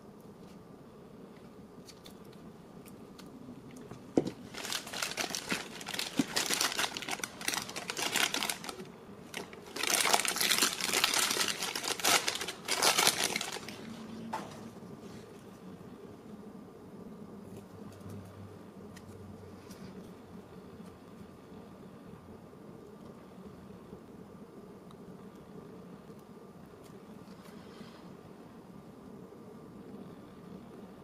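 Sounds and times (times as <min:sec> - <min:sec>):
plastic bag crinkling: 0:03.2 - 0:14.6.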